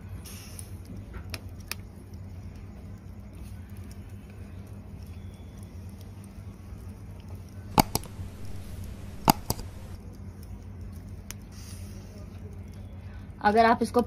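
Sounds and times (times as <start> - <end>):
skewer or embers clicking: 7.8 - 10.0
steady low hum: 7.8 - 10.0.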